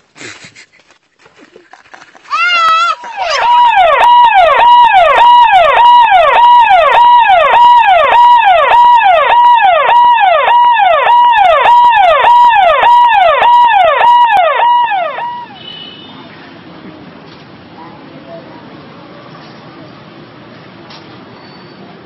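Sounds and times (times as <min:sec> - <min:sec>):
electronic siren sound effect: 0:03.0 - 0:15.6.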